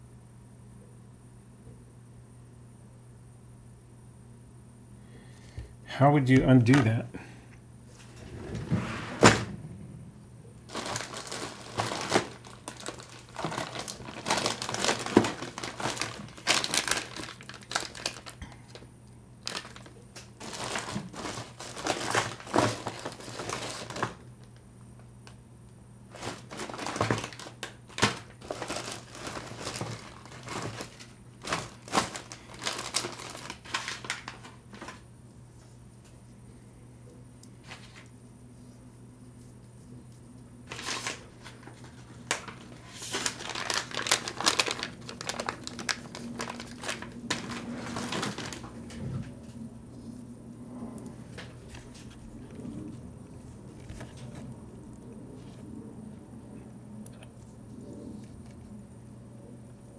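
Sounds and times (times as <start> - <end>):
plastic bags crinkling: 10.6 - 24.6, 26.1 - 35.1, 40.7 - 49.0.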